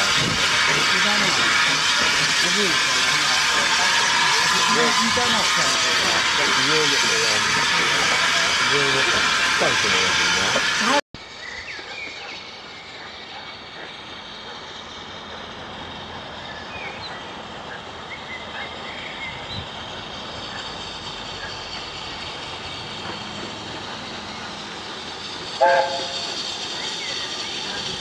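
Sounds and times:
distant steam train rushing: 0:00.0 - 0:28.0
wind noise on microphone: 0:00.1 - 0:00.6.

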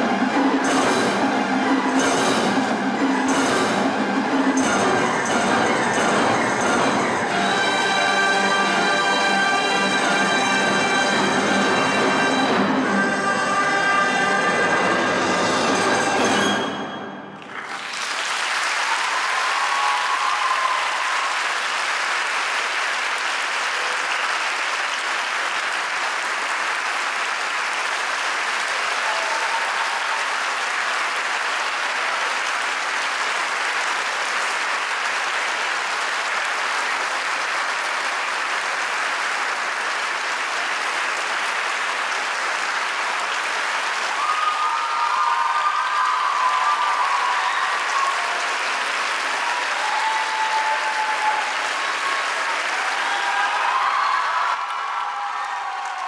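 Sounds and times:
orchestra chord: 0:00.0 - 0:17.3
audience applause: 0:17.3 - 0:56.0.

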